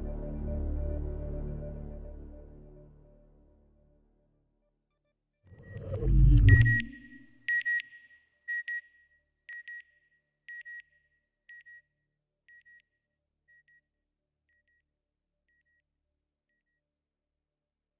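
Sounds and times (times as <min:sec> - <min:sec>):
electronic double beep: 0:05.6 - 0:07.3.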